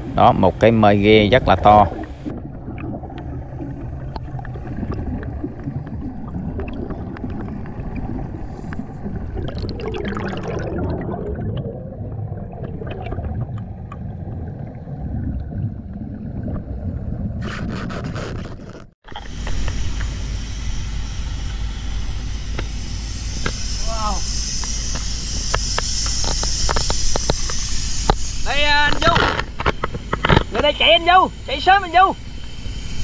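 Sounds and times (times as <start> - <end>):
low underwater rumble: 1.3 - 17.7
exhaled air bubbles: 1.3 - 28.5.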